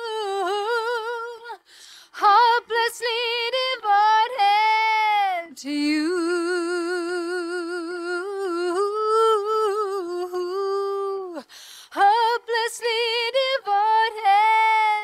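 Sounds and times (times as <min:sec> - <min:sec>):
breath: 0:01.6 - 0:02.2, 0:11.4 - 0:12.0.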